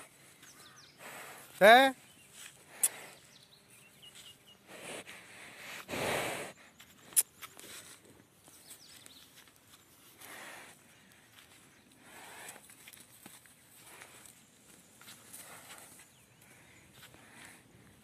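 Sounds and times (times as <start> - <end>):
bull exhaling hard: 4.7 - 6.6.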